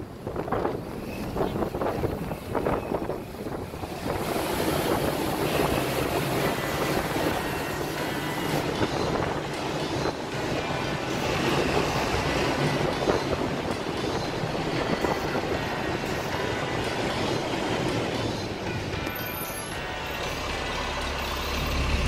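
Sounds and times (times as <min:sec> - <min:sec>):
wind rushing: 0:00.0 - 0:07.9
traffic echoing in a tunnel: 0:00.0 - 0:22.0.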